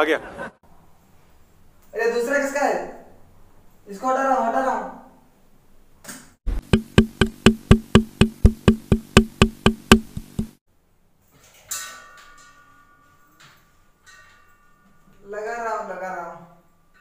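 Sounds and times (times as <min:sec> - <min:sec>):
wood block strikes: 0:06.6 - 0:10.6.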